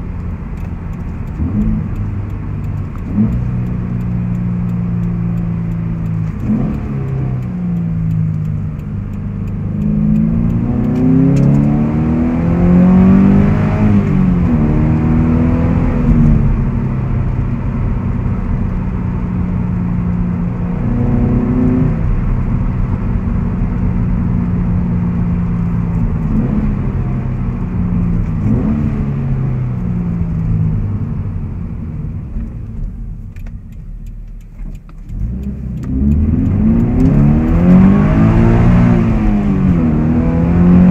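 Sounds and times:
car engine from inside cabin: 0.0 - 40.9.

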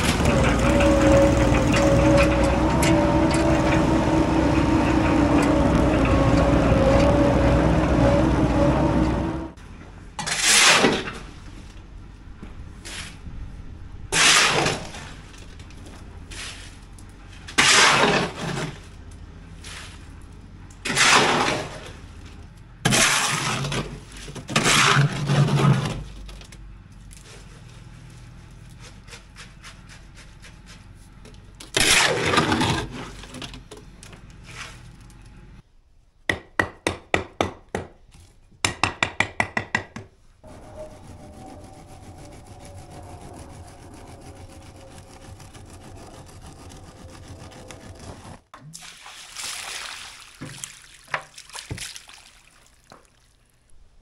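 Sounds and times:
shovel scraping stone: 10.2 - 11.2, 31.8 - 33.4
scraping wet concrete: 10.2 - 11.4, 16.2 - 26.2, 27.1 - 33.6, 40.4 - 48.5.

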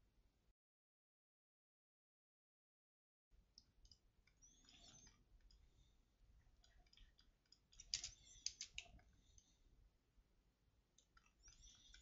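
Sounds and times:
computer mouse clicks: 6.6 - 9.5, 11.0 - 12.0.

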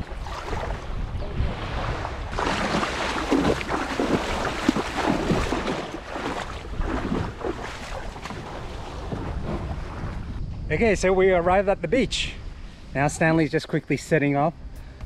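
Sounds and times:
feet splashing in shallow water: 0.0 - 10.3
wind buffeting microphone: 0.0 - 13.5.

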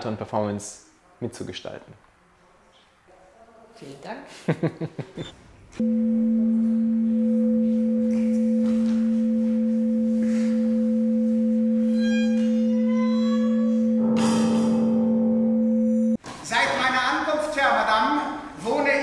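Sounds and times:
faint high tones: 5.8 - 16.2
low electronic tone: 5.8 - 16.2.

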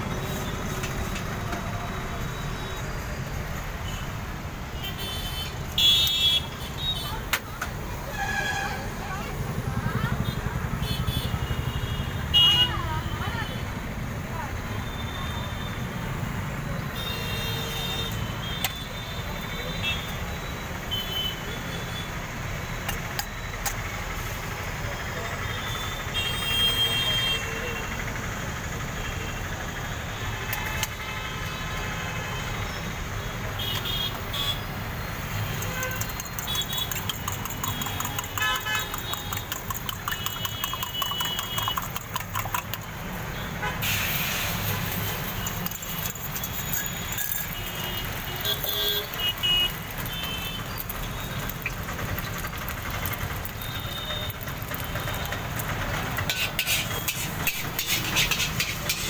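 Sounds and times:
traffic rumble: 0.0 - 59.0
vehicle horns honking: 33.5 - 42.6, 43.3 - 51.4, 53.5 - 55.3
metal clinks: 45.4 - 47.7.

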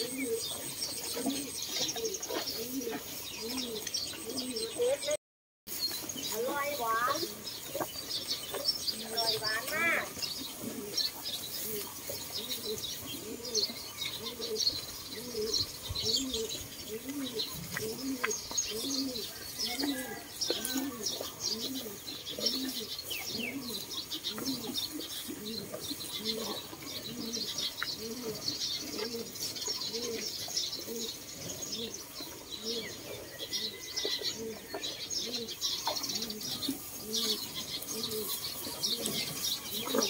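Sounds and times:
doves cooing: 0.0 - 5.2, 6.3 - 40.0
cows chewing dry straw: 5.7 - 15.8, 35.7 - 40.0.

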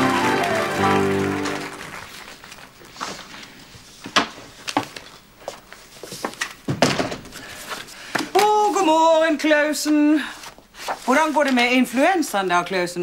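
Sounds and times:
music sting: 0.0 - 2.0.

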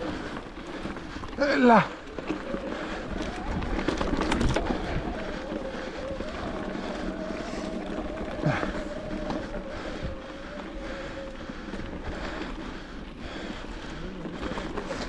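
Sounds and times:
tyres on dirt trail: 0.0 - 15.0
electric bike motor whining: 2.0 - 15.0
wind on microphone: 2.5 - 12.4.

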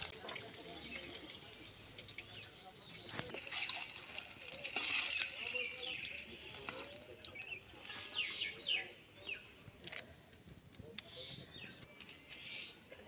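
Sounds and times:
water splashing and trickling: 0.0 - 8.8.

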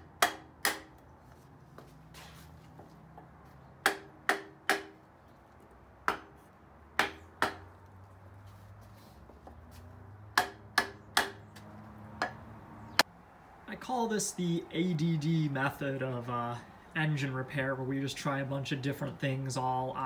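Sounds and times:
hammer pounding on metal: 0.0 - 1.0, 3.8 - 5.0, 6.0 - 6.4, 7.0 - 7.7, 10.3 - 11.6.

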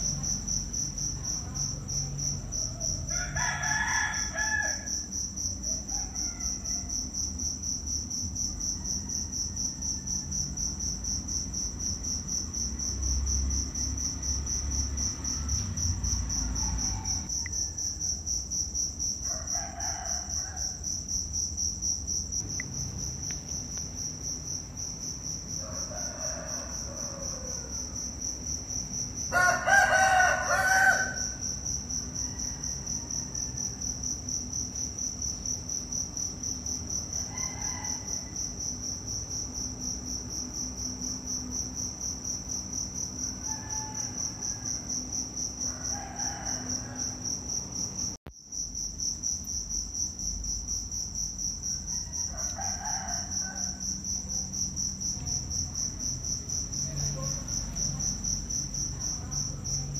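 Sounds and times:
insects chirring: 0.0 - 59.9
rooster crowing: 2.3 - 7.2, 8.6 - 10.6, 14.5 - 18.2, 19.2 - 20.9, 25.0 - 34.8, 36.9 - 38.7, 40.6 - 48.1, 51.7 - 54.5.

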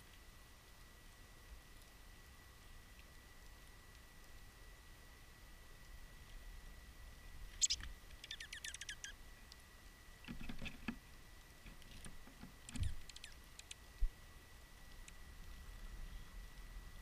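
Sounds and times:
birds pecking seed on wood: 7.4 - 13.9.

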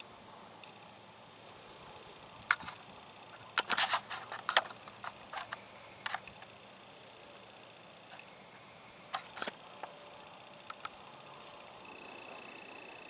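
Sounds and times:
faint high-pitched hum: 0.0 - 13.0
sharp clicks and crackles: 2.4 - 6.5, 9.1 - 10.0.

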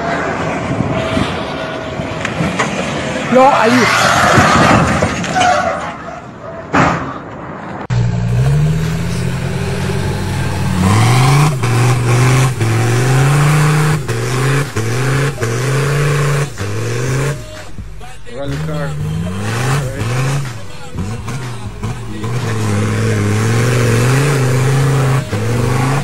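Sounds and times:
rough noisy vehicle: 0.0 - 26.0
off-road engine revving: 7.9 - 26.0.

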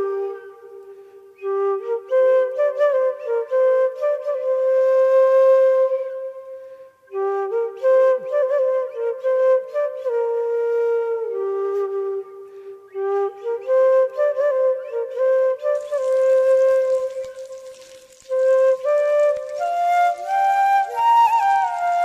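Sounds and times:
instrumental solo melody: 15.1 - 22.0.

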